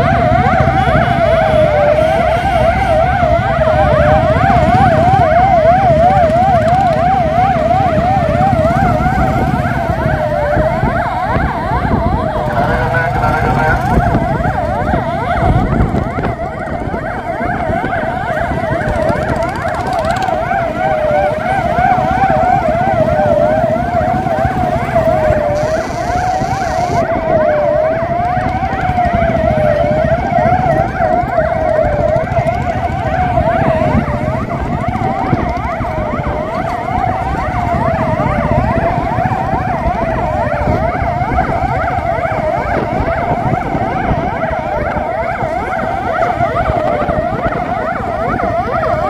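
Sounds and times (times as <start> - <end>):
police siren rising and falling: 0.0 - 49.0
road noise: 0.0 - 49.0
warbling police sirens: 0.0 - 49.0.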